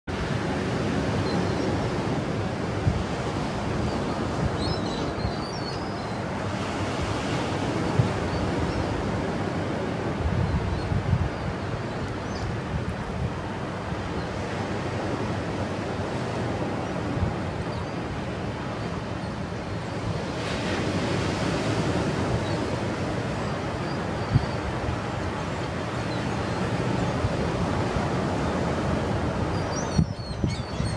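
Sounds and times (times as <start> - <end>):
ocean surf breaking: 0.1 - 30.0
wind noise on microphone: 0.1 - 30.9.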